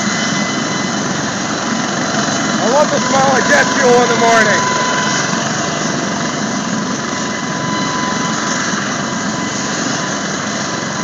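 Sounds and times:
turbine whine: 0.0 - 11.0
rotor and exhaust rush: 1.0 - 6.8.

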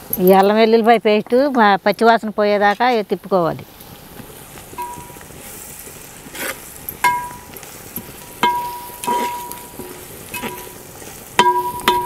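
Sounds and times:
oil sizzling: 0.0 - 12.0
ladle knocking on metal pot: 7.0 - 7.5, 8.4 - 10.8, 11.4 - 12.0.

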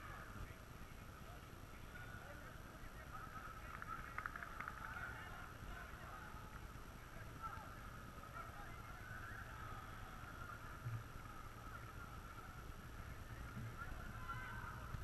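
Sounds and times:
distant shouts of footballers: 13.7 - 15.0.

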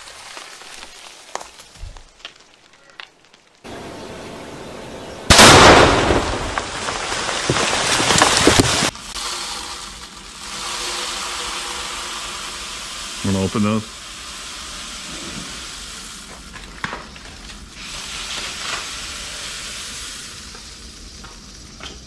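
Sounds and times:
debris raining down: 0.0 - 3.9, 5.3 - 21.7
loud explosive blast: 5.2 - 7.0.

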